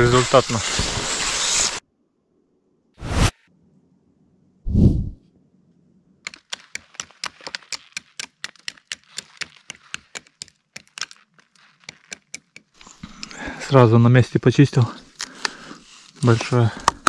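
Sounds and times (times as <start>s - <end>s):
knife chipping at tree bark: 6.2s - 13.3s.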